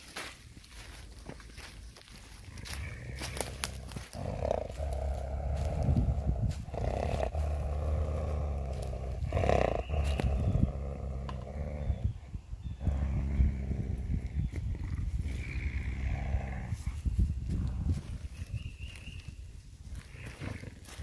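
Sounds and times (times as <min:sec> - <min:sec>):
coyote growling low: 0:02.4 - 0:18.6.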